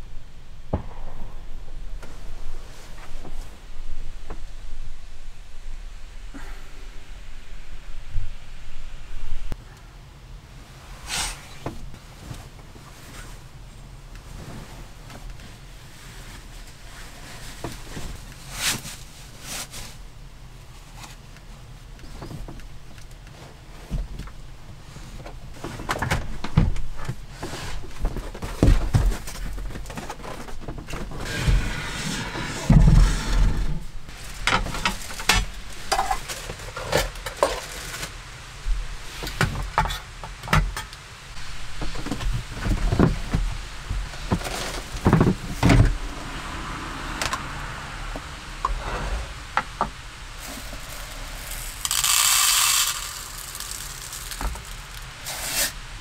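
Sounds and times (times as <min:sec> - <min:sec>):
rice grains pouring: 0:50.2 - 0:55.8.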